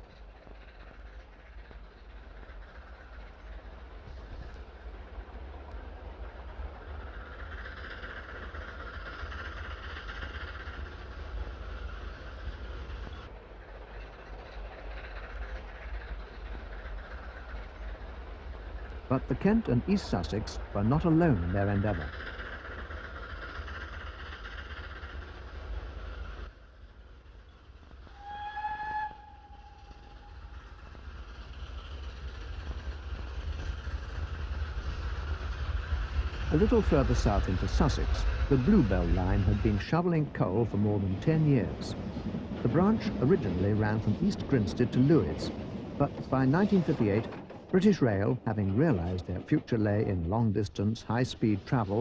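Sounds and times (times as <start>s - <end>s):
steam locomotive rumbling past: 0.0s - 52.0s
steam locomotive whistle: 28.1s - 30.4s.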